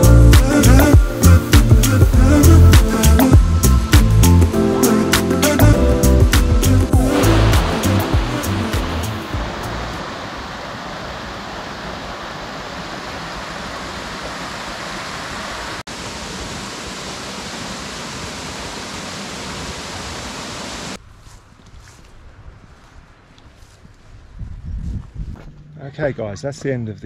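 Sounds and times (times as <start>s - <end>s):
waterfall rushing and splashing: 6.8s - 21.0s.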